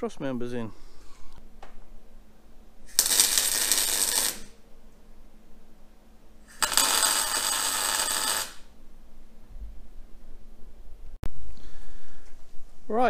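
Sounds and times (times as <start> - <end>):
arc welder crackling: 2.8 - 4.6, 6.4 - 8.8.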